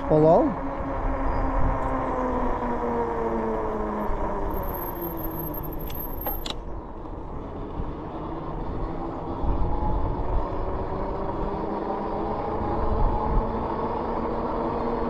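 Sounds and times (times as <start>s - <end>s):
electric bike motor whining: 0.0s - 15.0s
fat tyres rumbling on pavement: 0.0s - 15.0s
wind on microphone: 12.3s - 14.8s.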